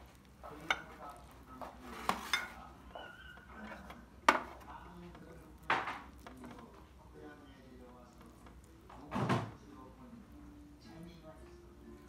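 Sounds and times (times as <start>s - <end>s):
wooden spoon scraping ceramic bowl: 0.5s - 4.7s.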